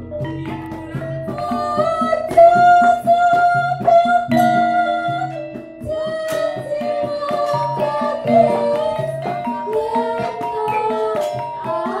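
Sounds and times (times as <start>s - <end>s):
gamelan ensemble playing: 0.0s - 3.3s, 4.0s - 12.0s
woman singing long notes: 1.3s - 12.0s.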